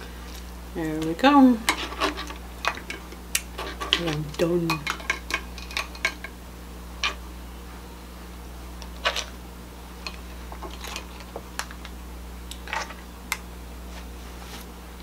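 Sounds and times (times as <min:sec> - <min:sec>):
steady low hum: 0:00.0 - 0:15.0
crab shells cracking: 0:01.7 - 0:06.4.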